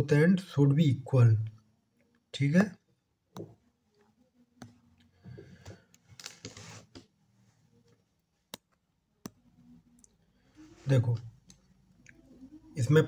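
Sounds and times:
soft rustle: 6.0 - 8.1.

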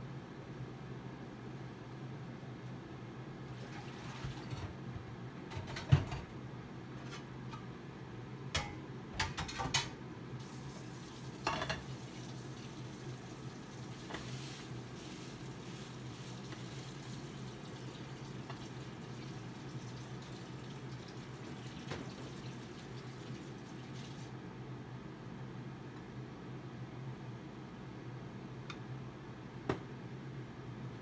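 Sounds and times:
pots and utensils clinking: 8.6 - 10.0, 11.4 - 12.0.

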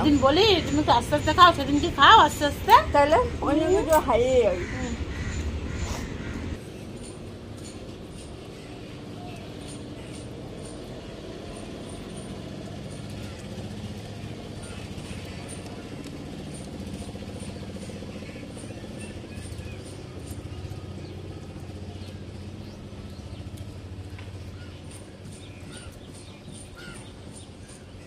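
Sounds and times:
birds chirping: 0.0 - 28.0
steady low hum: 0.0 - 28.0.

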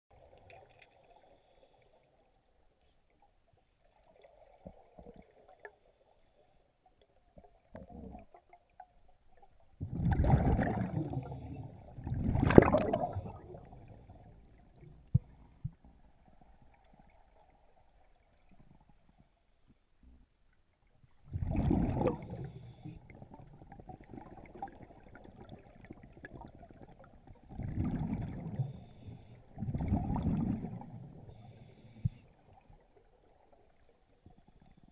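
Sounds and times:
gurgling exhaled bubbles: 9.8 - 14.2, 21.3 - 28.9, 29.5 - 31.2
faint regulator hiss: 28.6 - 29.5, 31.2 - 32.8.

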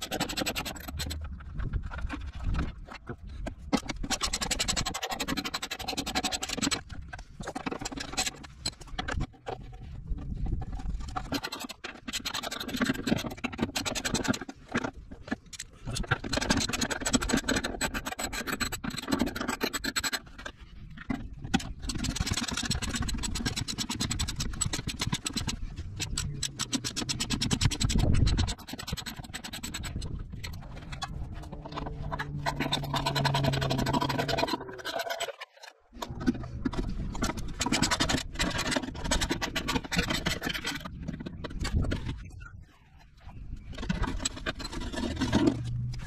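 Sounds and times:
metal scraping: 21.6 - 40.5.

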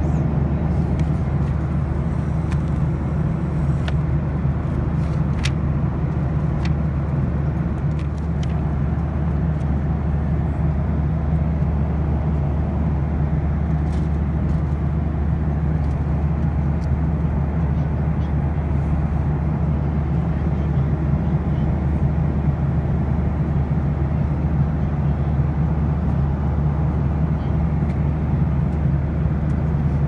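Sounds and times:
airplane cabin engine rumble: 0.0 - 30.0.

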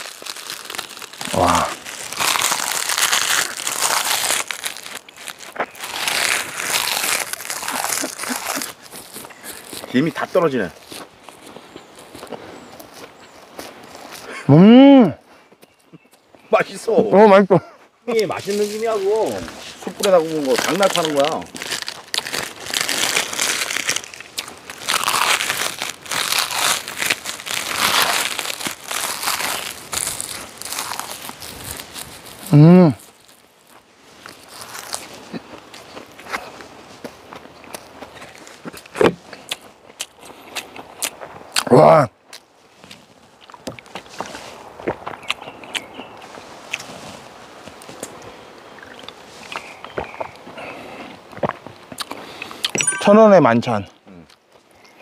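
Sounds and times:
seaweed sheets crinkling: 0.0 - 12.2, 18.1 - 41.0
crunching while chewing: 0.0 - 14.3, 18.5 - 52.8.

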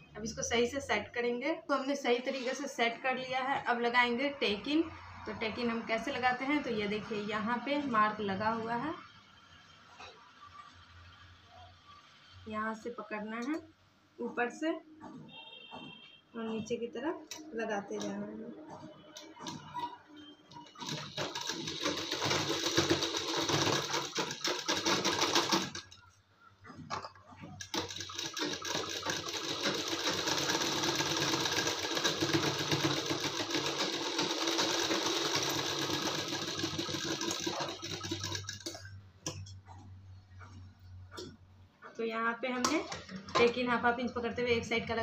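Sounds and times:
sewing machine stitching: 19.2 - 26.1, 26.7 - 38.9.

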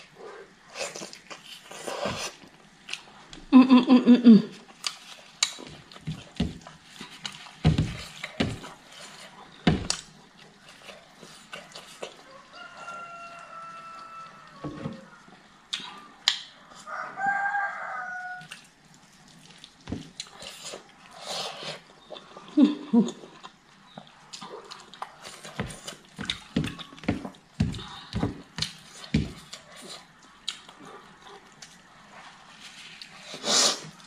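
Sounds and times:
chicken calling: 12.2 - 15.4
chewing and lip smacks: 18.4 - 27.4, 28.6 - 33.2.

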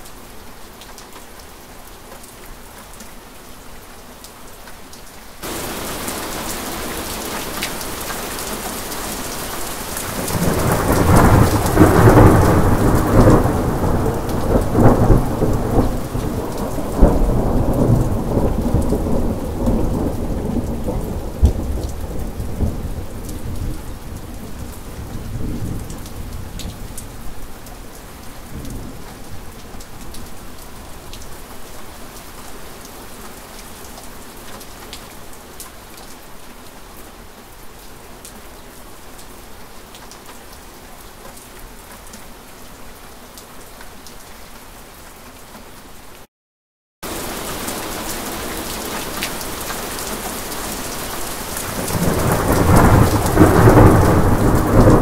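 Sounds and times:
steady rain: 0.0 - 46.3, 47.0 - 55.0
thunder rumbling: 5.4 - 8.1, 10.0 - 23.7, 51.7 - 55.0.

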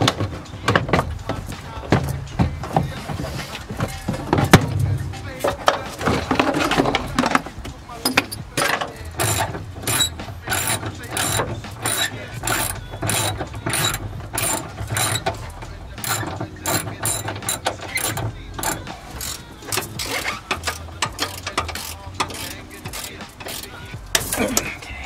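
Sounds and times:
ratchet wrench clicking: 8.0 - 24.4.

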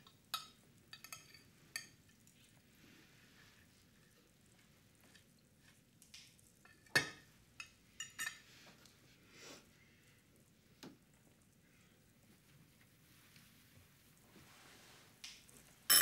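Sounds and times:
cutlery clinking on plates: 0.3 - 2.0, 6.6 - 8.4.

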